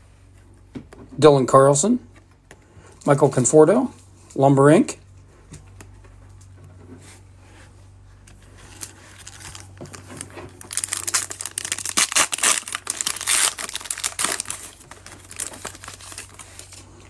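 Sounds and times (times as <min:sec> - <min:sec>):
foil wrapper crinkling and tearing: 0:08.6 - 0:17.0.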